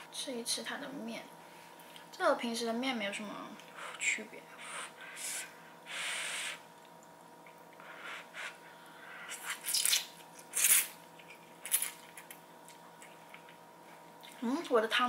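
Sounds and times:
noodles being slurped: 9.3s - 11.0s.

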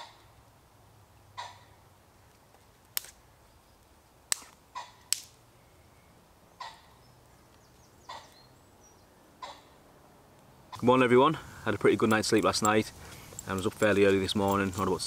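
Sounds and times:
dry twigs snapping: 2.3s - 3.2s, 4.3s - 5.4s.

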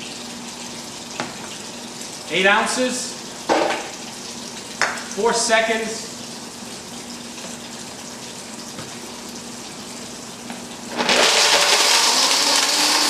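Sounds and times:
blender humming at low speed: 10.9s - 13.0s
blender whirring at full power: 10.9s - 13.0s.

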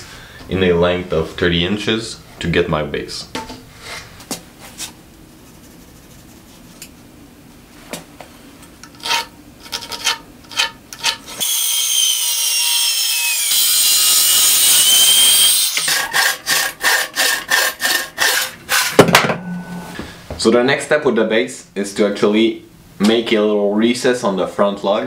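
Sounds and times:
hand saw strokes: 9.0s - 19.0s
power saw cutting wood: 11.4s - 19.1s.

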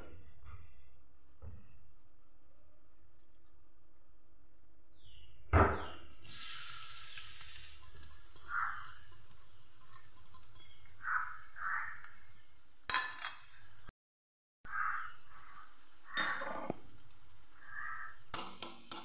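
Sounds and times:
oil sizzling: 6.1s - 13.9s, 14.7s - 19.0s.

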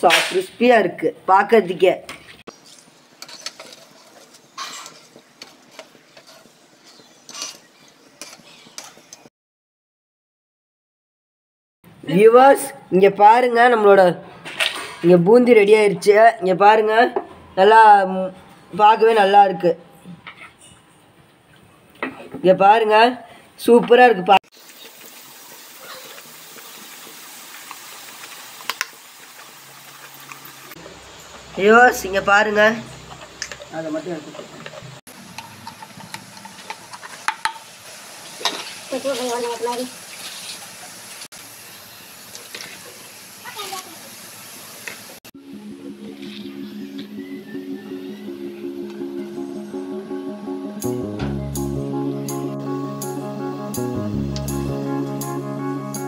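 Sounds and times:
metal strainer scraping a pan: 3.2s - 5.1s, 5.7s - 9.0s
oil sizzling: 24.5s - 45.2s.

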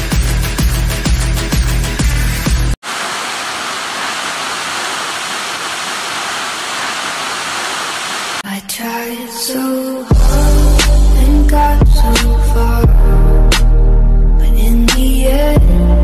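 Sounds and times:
waterfall rushing: 2.8s - 8.4s.

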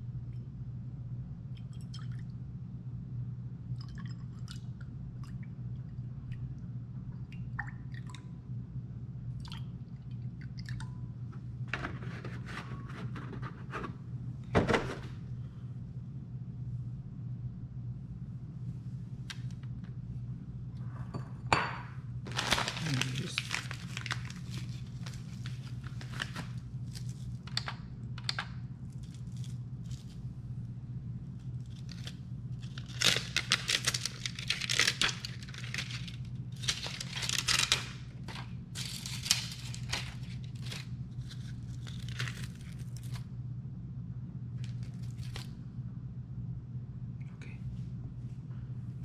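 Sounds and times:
steady low hum: 0.0s - 49.0s
plastic packaging crinkling: 22.3s - 27.8s, 31.6s - 43.2s, 44.6s - 45.5s.

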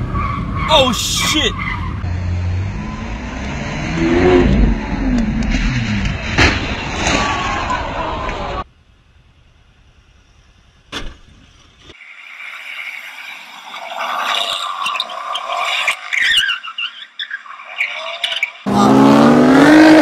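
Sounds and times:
car tyres squealing on asphalt: 0.0s - 2.1s, 12.4s - 20.0s.

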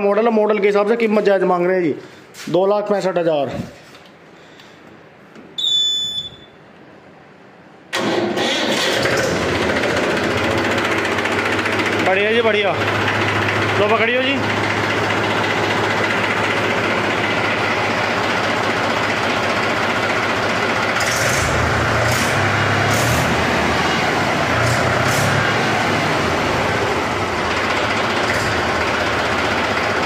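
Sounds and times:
diesel tractor engine running: 7.9s - 30.0s.

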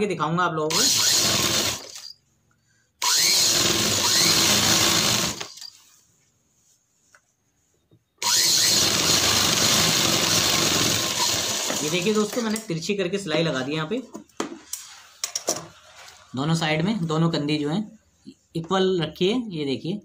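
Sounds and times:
sewing machine stitching: 0.7s - 2.1s, 3.0s - 5.8s, 8.2s - 12.6s.

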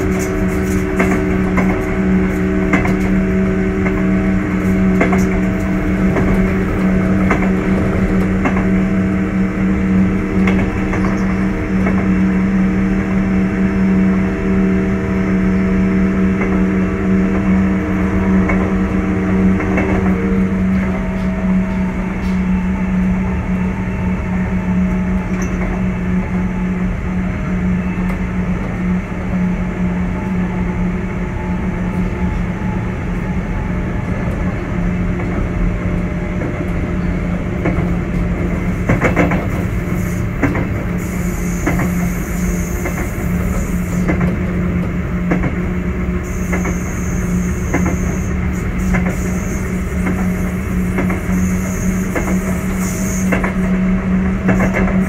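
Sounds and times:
rail-joint clicks: 0.0s - 12.3s, 16.3s - 16.7s, 18.2s - 23.2s, 24.2s - 26.2s, 34.0s - 55.0s
higher tones in the hum: 0.0s - 35.0s, 45.8s - 55.0s
electric train motor drone: 0.0s - 55.0s.

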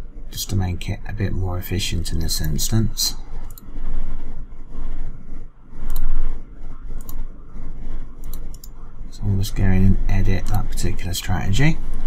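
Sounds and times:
low hum: 0.0s - 12.0s
rumbling background noise: 0.0s - 12.0s
computer mouse clicks: 3.4s - 3.7s, 5.8s - 6.2s, 6.9s - 7.2s, 8.2s - 8.8s.

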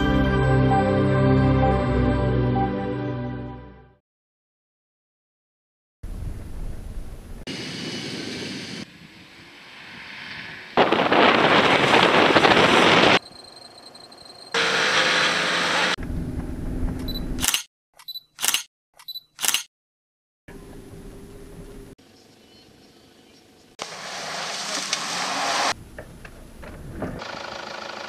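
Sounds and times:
off-road vehicle engine and tyres: 6.1s - 18.2s, 20.5s - 28.0s
camera shutter clicks: 17.4s - 19.7s.

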